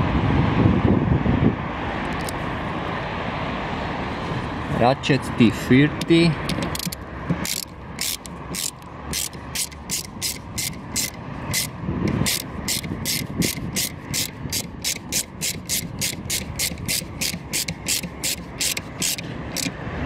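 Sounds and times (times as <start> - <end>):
hand ratchet clicking: 6.0 - 19.8.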